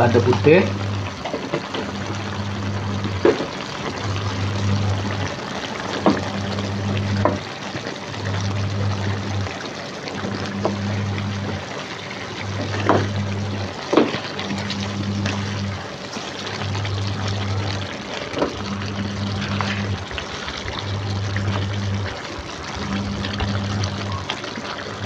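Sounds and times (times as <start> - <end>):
liquid simmering and bubbling: 0.0 - 25.0
low hum: 14.5 - 25.0.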